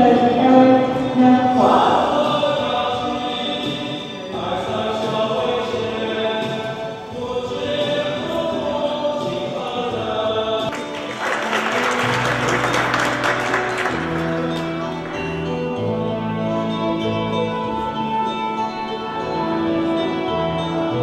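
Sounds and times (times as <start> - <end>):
choir-like singing: 0.0 - 21.0
audience clapping: 10.7 - 15.6.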